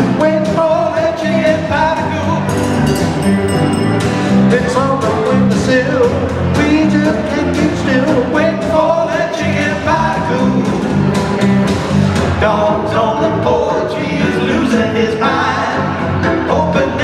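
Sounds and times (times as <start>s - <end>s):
electric bass: 0.0s - 17.0s
acoustic guitar strumming: 2.3s - 6.2s
electric guitar lead: 2.4s - 5.5s.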